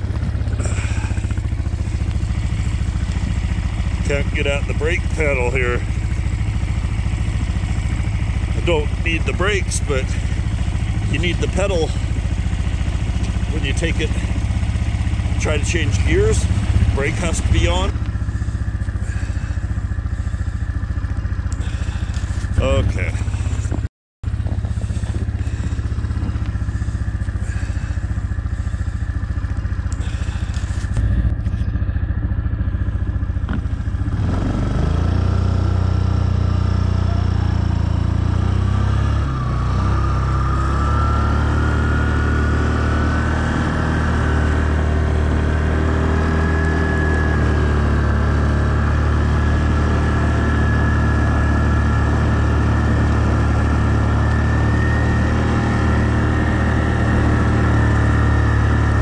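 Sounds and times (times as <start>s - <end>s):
atv engine pushing snow: 0.0s - 59.0s
thin whine rising in pitch: 38.8s - 59.0s.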